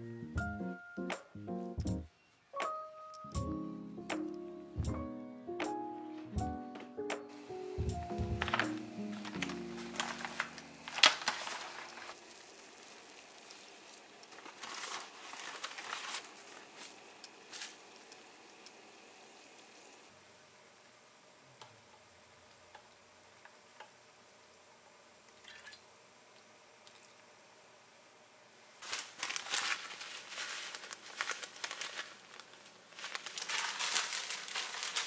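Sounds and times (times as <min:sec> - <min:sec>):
paper packet rustling: 0:07.3 - 0:18.2, 0:28.8 - 0:35.0
pot of water heating: 0:07.4 - 0:27.9, 0:30.8 - 0:35.0.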